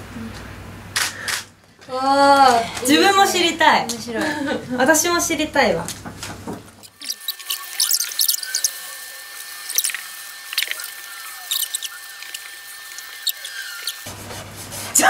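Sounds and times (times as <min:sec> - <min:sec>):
pens scratching on paper: 0:06.9 - 0:08.8, 0:09.7 - 0:15.0.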